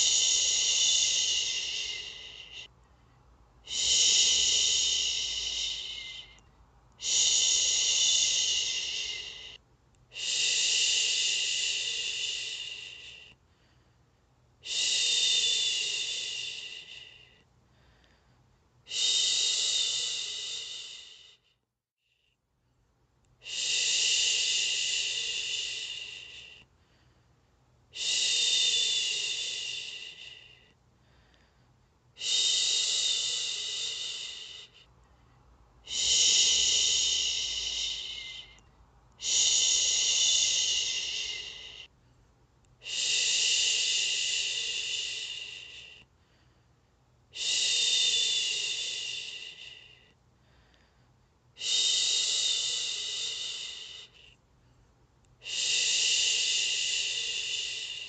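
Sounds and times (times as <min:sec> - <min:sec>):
woman shushing: 0:00.0 - 0:02.7, 0:03.7 - 0:06.4, 0:07.0 - 0:13.3, 0:35.8 - 0:38.6, 0:39.2 - 0:41.9.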